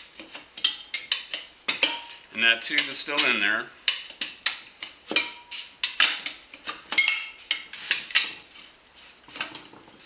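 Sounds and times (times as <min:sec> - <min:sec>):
tire irons clinking on metal rim: 0:06.9 - 0:08.4.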